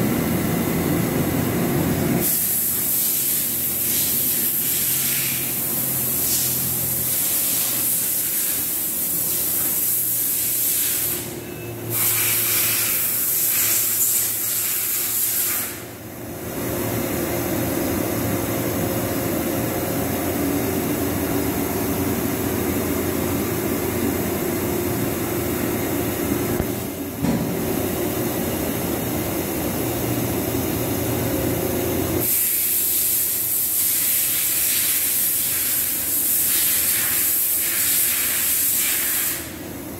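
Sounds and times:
low motor and pump hum: 0.0 - 2.7, 16.0 - 32.3
steady loud hiss: 2.1 - 16.0, 16.6 - 39.8.

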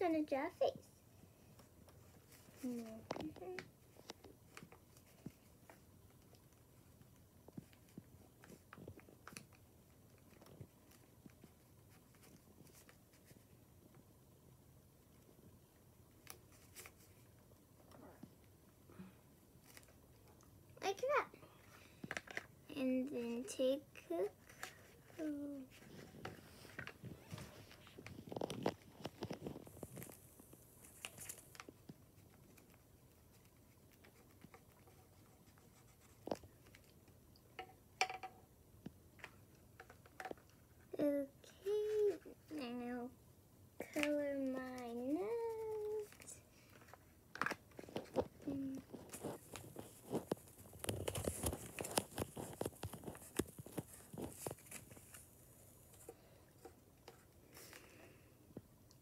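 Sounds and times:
crayons clicking and tapping: 1.4 - 14.1, 19.6 - 43.1, 43.8 - 55.3
paper rustle: 16.2 - 17.3, 24.1 - 37.0, 43.8 - 55.3
crayon scratching on paper: 33.2 - 36.4.

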